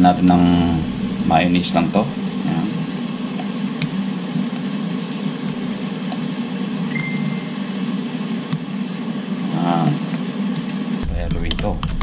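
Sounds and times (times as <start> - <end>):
machine hum with hiss: 0.0 - 12.0
faint high tone: 6.9 - 7.6.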